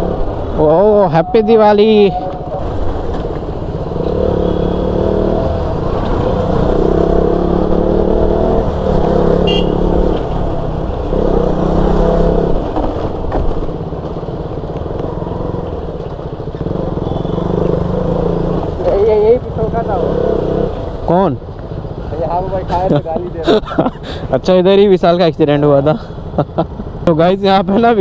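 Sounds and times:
motorcycle engine revving: 0:01.9 - 0:20.9.

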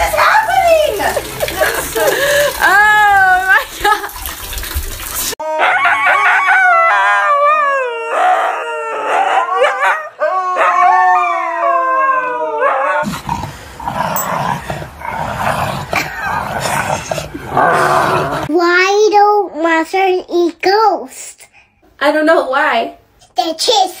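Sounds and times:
dog howling: 0:05.4 - 0:13.0.

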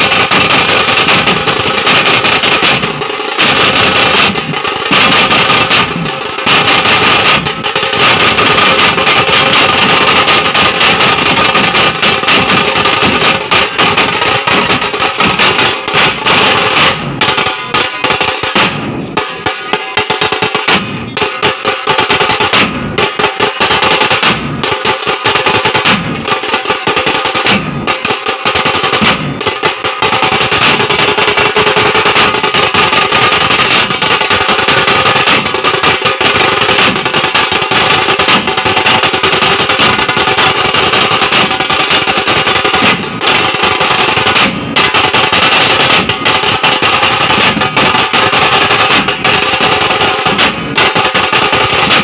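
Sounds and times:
drummers playing fast rhythm: 0:00.0 - 0:52.0.

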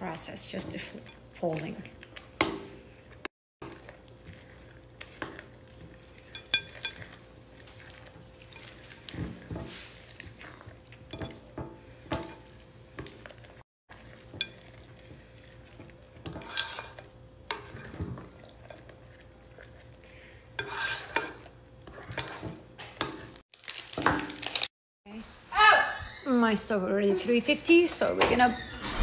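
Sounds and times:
spoon scraping glass bowl: 0:04.3 - 0:12.6, 0:14.2 - 0:19.8, 0:20.6 - 0:22.5.

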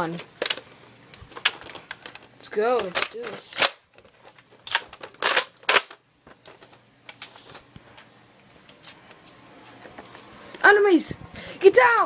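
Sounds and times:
plastic clacks: 0:00.2 - 0:08.1.

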